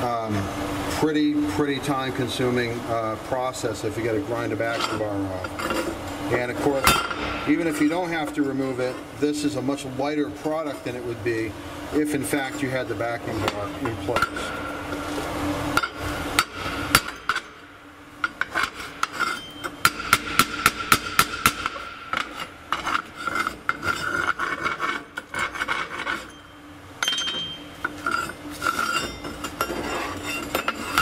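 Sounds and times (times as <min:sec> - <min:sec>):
gritty scraping of slag: 0:04.0 - 0:09.6, 0:18.2 - 0:19.8, 0:22.1 - 0:26.4, 0:27.8 - 0:31.0.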